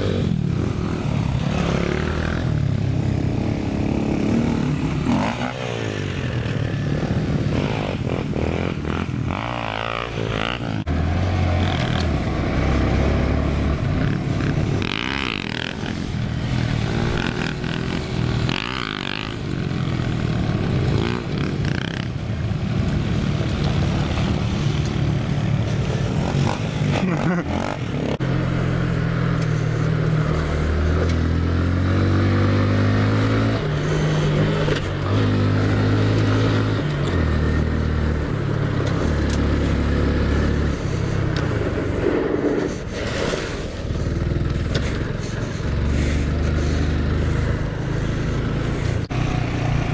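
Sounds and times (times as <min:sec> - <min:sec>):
mini motorcycle engines revving: 0:00.0 - 0:49.9.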